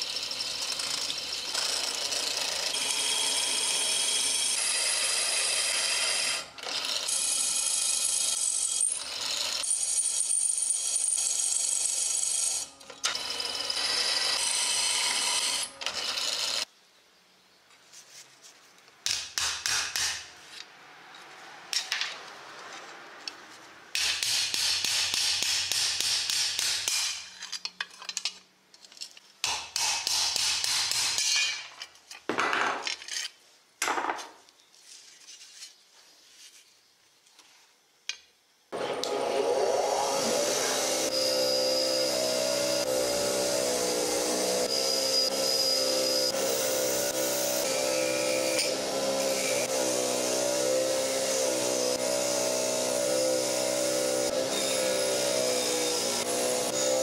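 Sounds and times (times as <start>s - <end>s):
bench grinder humming: 38.8s - 57.0s.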